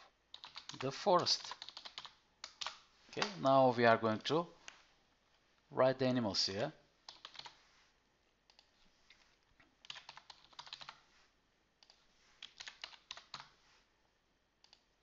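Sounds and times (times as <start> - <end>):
keyboard typing clicks: 0.3 - 0.8, 1.5 - 3.4, 7.1 - 7.5, 9.8 - 11.0.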